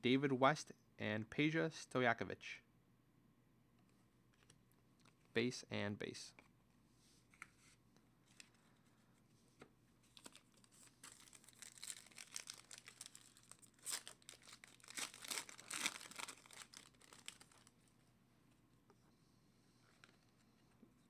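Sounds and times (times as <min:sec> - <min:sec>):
foil pack crinkling and tearing: 0:10.1 - 0:17.8.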